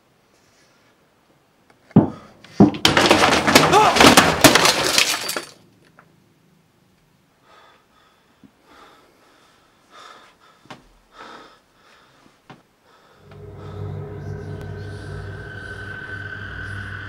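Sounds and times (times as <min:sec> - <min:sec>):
person breathing hard: 0:07.4 - 0:14.4
low steady hum: 0:13.2 - 0:17.0.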